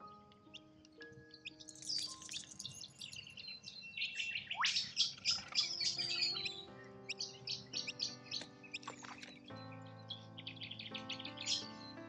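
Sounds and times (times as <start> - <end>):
birds chirping and twittering: 0.0 - 12.0
soft background music: 0.0 - 12.0
upward-sweeping bird call: 4.0 - 8.4.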